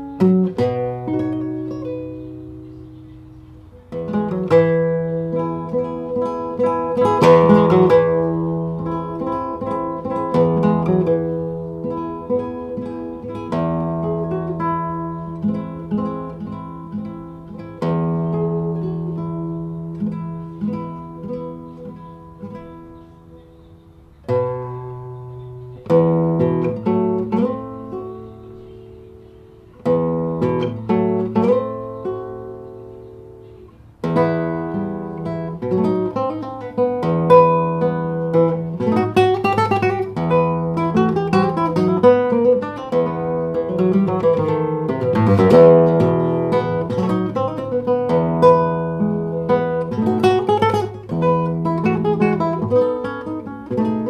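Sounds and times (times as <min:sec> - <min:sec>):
solo acoustic guitar: 0:00.0 - 0:54.0.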